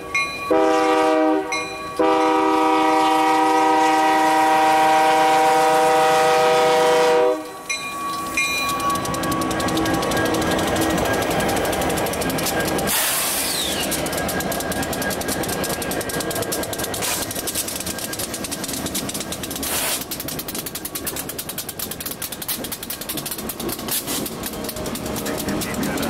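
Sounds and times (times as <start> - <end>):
train horn: 0.5 - 7.6
train wheels clicking over rail joints: 1.5 - 26.0
air hiss: 12.9 - 13.8, 19.6 - 20.1.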